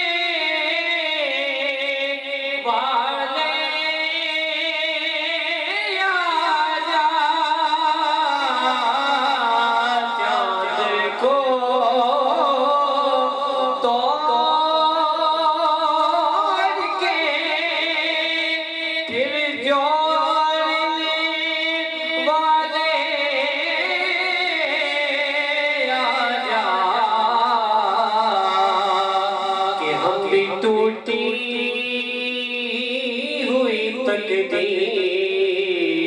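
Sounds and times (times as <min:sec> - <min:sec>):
man singing devotional song: 0:00.0 - 0:36.0.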